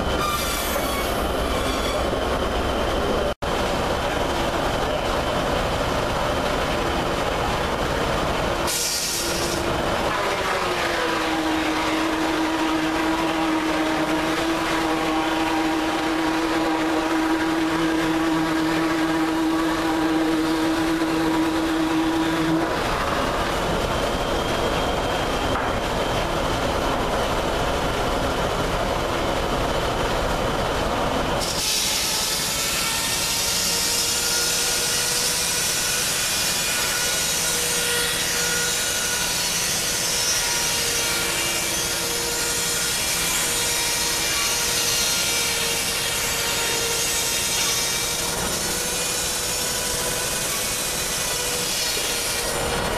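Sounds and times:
saw blade cutting log: 0.2 - 2.1, 8.6 - 23.2, 31.4 - 52.8.

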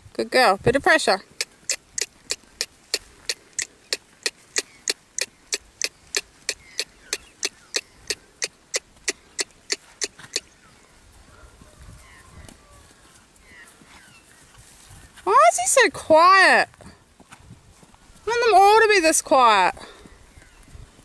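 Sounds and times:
horse trotting with clicks: 1.3 - 10.5.

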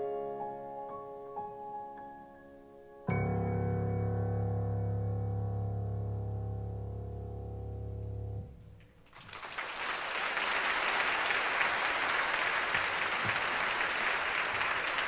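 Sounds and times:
low keyboard chord: 0.0 - 8.8
audience applause: 9.0 - 15.0.

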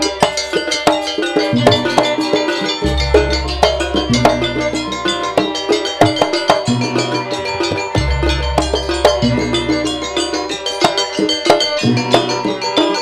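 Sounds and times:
drum strokes: 0.0 - 13.0
gamelan ensemble playing: 0.0 - 13.0.

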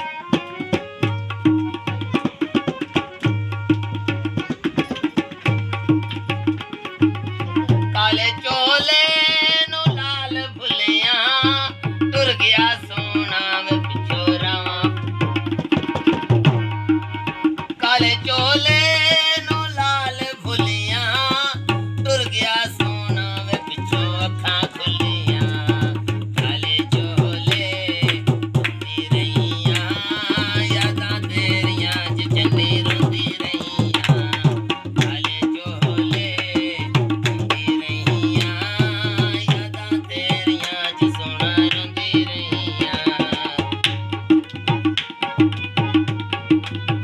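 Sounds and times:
harmonium chords: 0.0 - 47.0
tabla rhythm: 0.0 - 47.0
person singing: 17.8 - 44.0.

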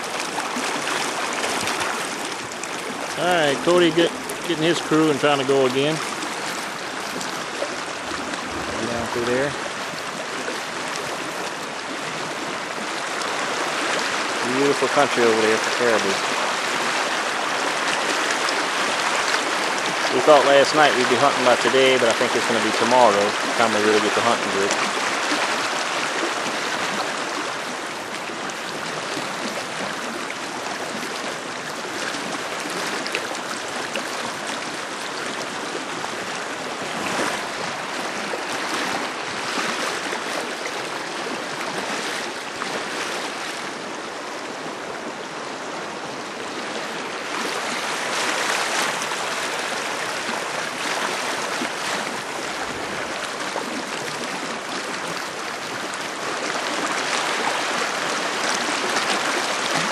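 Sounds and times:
river water rushing over rocks: 0.0 - 59.9.

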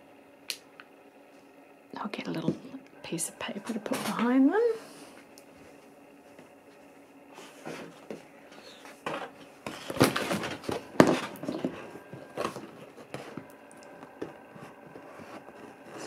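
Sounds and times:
paper rustling and crinkling: 7.4 - 16.0.

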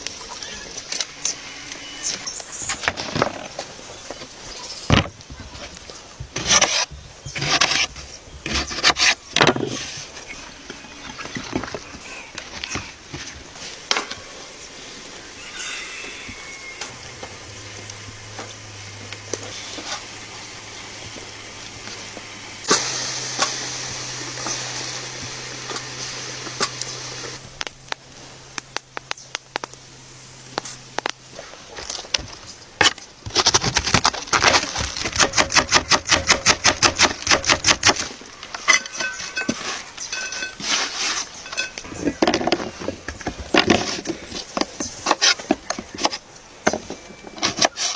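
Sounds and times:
bright hiss: 13.5 - 31.3.

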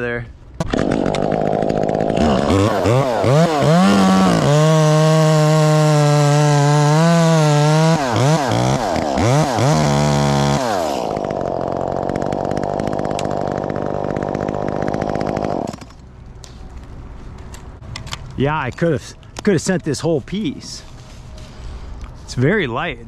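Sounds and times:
chainsaw cutting wood: 0.6 - 16.0.

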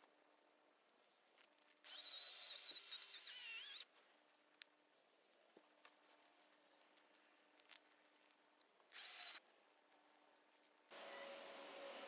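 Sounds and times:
electric chainsaw motor whining: 1.9 - 3.8, 9.0 - 9.4.

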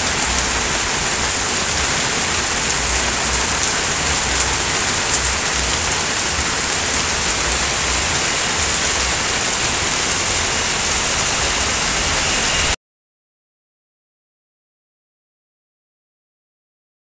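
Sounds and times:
heavy rain pouring: 0.0 - 12.8.

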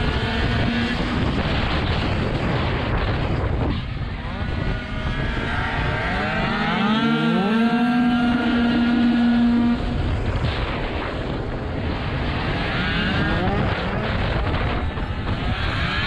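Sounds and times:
two-stroke scooter engine: 0.0 - 10.5
wind noise: 0.0 - 16.0.

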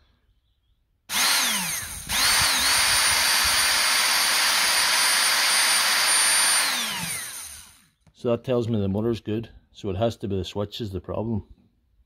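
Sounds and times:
electric motor high whine: 1.1 - 7.9.

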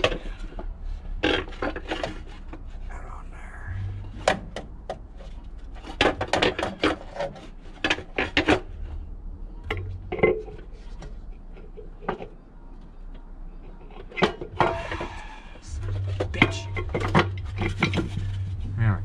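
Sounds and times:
hard objects clicking and knocking: 4.0 - 9.0, 9.6 - 18.6.

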